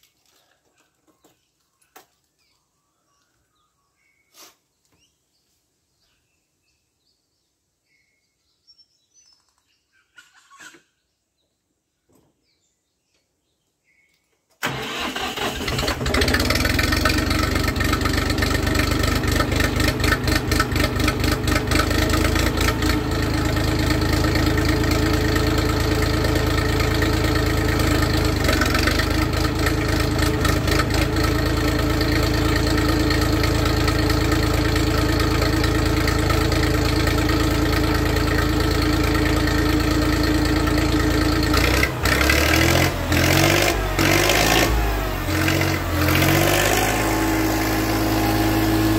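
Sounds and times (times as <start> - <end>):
tractor diesel engine running: 14.6 - 48.9.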